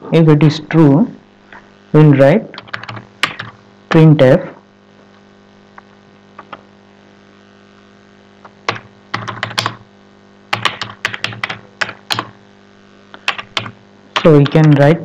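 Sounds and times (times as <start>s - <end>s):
steady low hum: 0.0s - 15.0s
computer keyboard typing: 2.5s - 3.6s, 8.7s - 9.8s, 10.5s - 12.4s, 13.2s - 14.8s.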